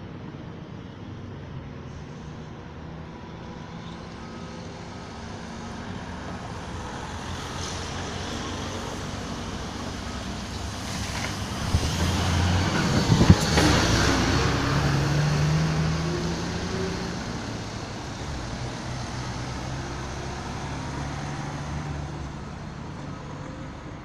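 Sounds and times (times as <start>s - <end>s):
bus engine passing: 0.0s - 24.0s
tyres hissing on wet road: 1.7s - 23.9s.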